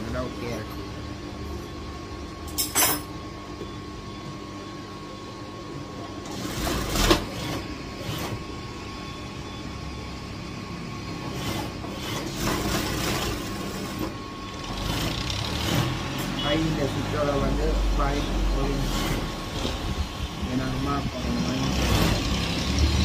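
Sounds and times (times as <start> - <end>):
sewing machine stitching: 6.2 - 8.4, 11.3 - 16.4, 21.6 - 23.0
sewing machine motor hum: 6.2 - 8.7, 10.7 - 23.0.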